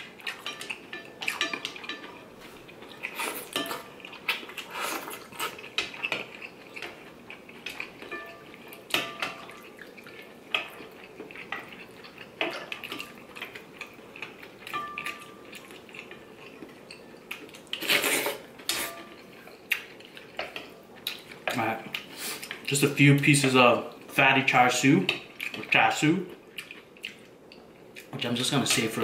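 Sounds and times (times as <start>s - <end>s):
utensils clinking on ceramic bowl: 0.2s - 2.2s, 2.8s - 4.2s, 7.7s - 9.7s, 11.4s - 17.2s.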